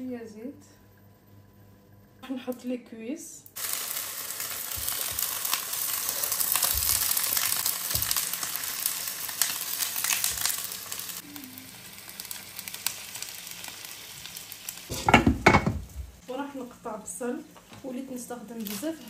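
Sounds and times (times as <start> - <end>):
chicken sizzling in hot oil: 3.6 - 16.2.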